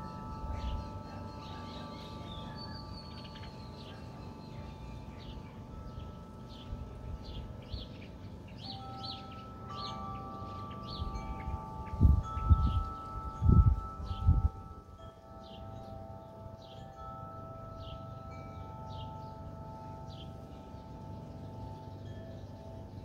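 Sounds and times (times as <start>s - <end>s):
wind rumbling on microphone: 0.0s - 16.0s
small birds chirping: 0.0s - 23.0s
wind chimes ringing: 0.0s - 23.0s.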